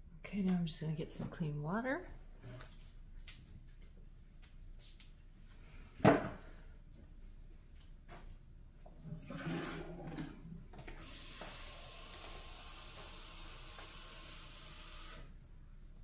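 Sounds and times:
tap water running into container: 9.0 - 15.3.

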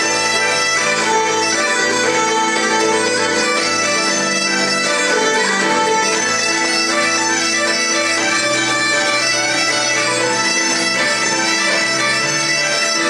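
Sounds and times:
bagpipes playing: 0.0 - 13.0
fiddle: 0.0 - 13.0
keyboard: 0.0 - 13.0.

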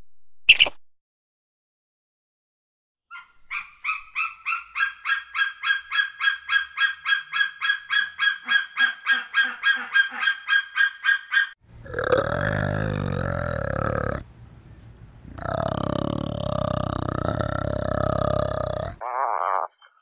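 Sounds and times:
eagle calling: 3.1 - 11.6.

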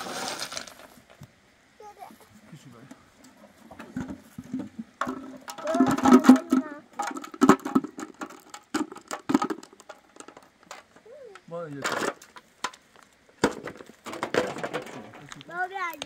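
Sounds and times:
objects rattling in metal bucket: 0.0 - 1.0, 3.7 - 11.0, 11.7 - 12.8, 13.4 - 15.4.

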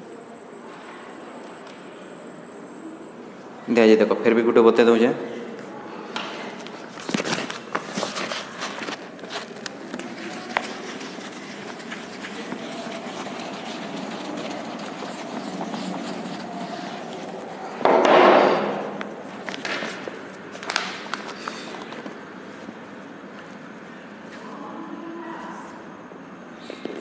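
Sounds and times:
duster rubbing chalkboard: 7.8 - 17.8.

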